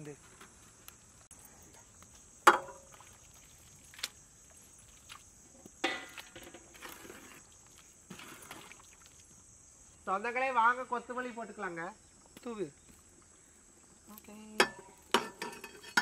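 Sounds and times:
high insect buzz: 0:00.0 - 0:15.1
ladle scraping and knocking pot: 0:14.6 - 0:16.0.

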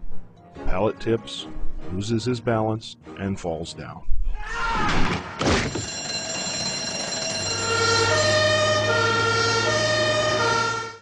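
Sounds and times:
electric alarm bell ringing: 0:05.4 - 0:10.3
two-tone siren: 0:05.6 - 0:11.0.

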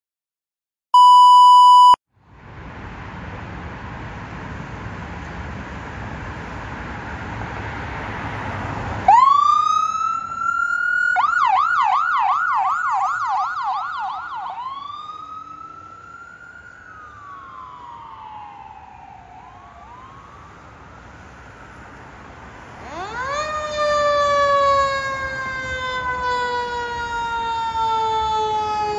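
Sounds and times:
traffic noise: 0:02.1 - 0:28.9
electronic siren wailing and yelping: 0:09.1 - 0:20.5, 0:22.8 - 0:28.9.

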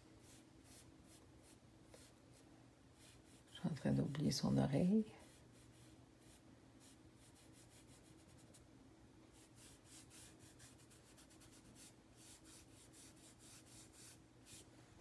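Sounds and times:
faint steady hum: 0:00.0 - 0:15.0
sponge rubbing pastel on paper: 0:03.0 - 0:03.6, 0:05.2 - 0:08.6, 0:09.4 - 0:14.7.

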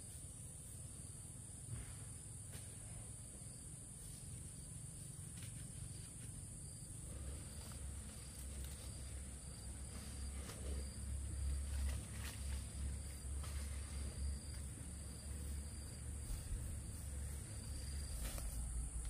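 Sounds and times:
crickets chirring: 0:00.0 - 0:19.0.

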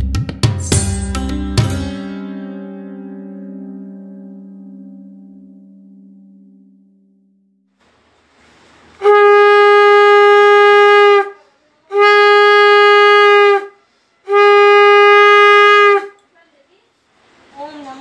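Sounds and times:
conch shell blown: 0:09.0 - 0:16.2.

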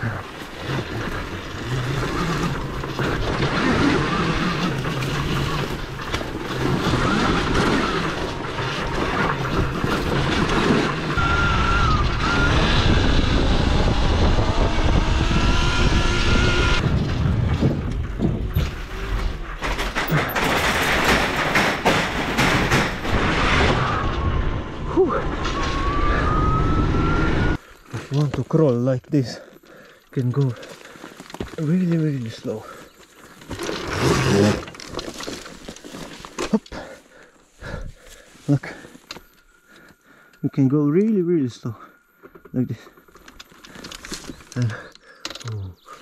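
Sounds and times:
tyre noise: 0:00.0 - 0:39.3
rushing wind: 0:00.8 - 0:20.3, 0:22.2 - 0:27.6
electric motor high whine: 0:01.5 - 0:16.9, 0:25.6 - 0:27.6.

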